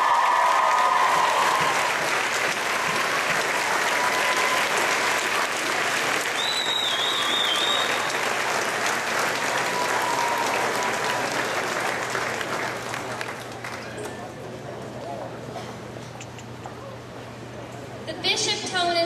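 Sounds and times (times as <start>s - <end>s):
audience applauding: 0.0s - 14.3s
high wavering whistle: 6.4s - 8.1s.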